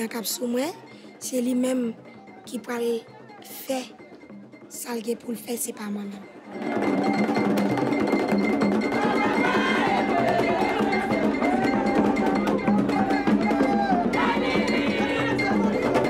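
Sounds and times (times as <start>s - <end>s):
voices singing: 6.2s - 16.0s
fast drumming: 6.5s - 16.0s.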